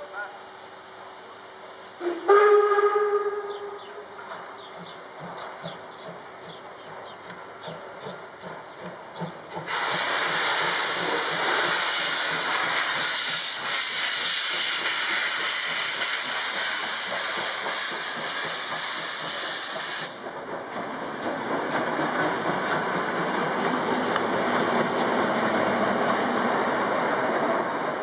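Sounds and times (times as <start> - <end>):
steam locomotive hissing steam: 0.0 - 4.2, 9.1 - 27.1
softer hiss: 9.5 - 20.2.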